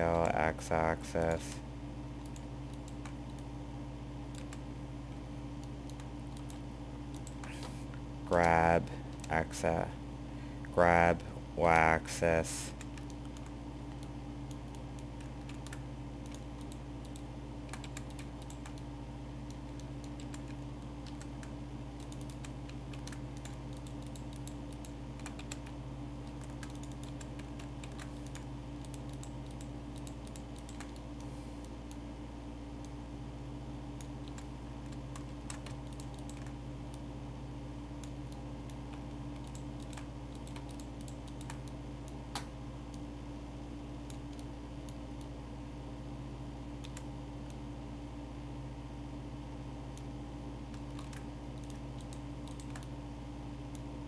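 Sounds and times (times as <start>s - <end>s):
low hum: 0.0s - 54.0s
keyboard and mouse clicks: 2.2s - 3.5s, 4.3s - 4.6s, 5.6s - 9.4s, 12.7s - 32.0s, 34.0s - 37.0s, 38.0s - 43.0s, 46.8s - 47.6s, 50.7s - 53.0s.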